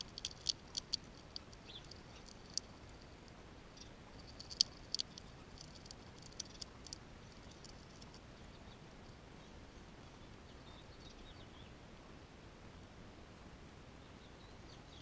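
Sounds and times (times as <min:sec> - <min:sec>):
squirrel gnawing and chewing: 0:00.0 - 0:08.8.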